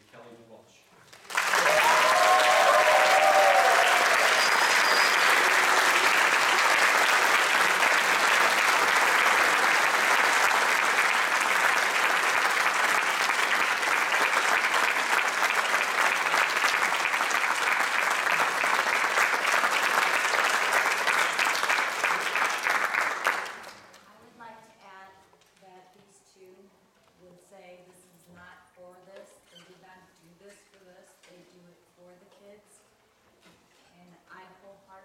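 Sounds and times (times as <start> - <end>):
audience applauding: 1.1 - 23.9.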